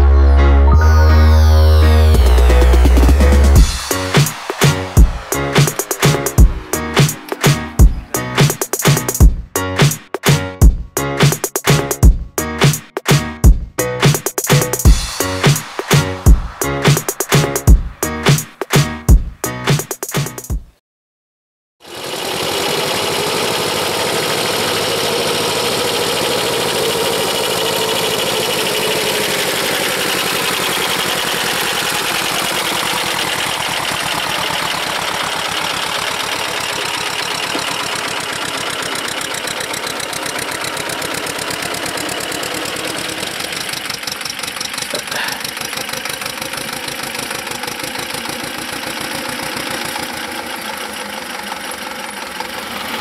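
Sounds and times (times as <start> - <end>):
tractor diesel engine running: 0.0 - 12.6, 13.8 - 18.4, 21.8 - 53.0.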